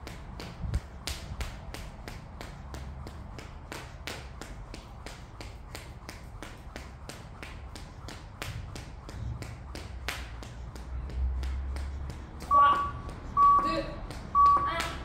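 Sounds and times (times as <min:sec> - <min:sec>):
skipping rope slapping floor: 0:00.0 - 0:15.0.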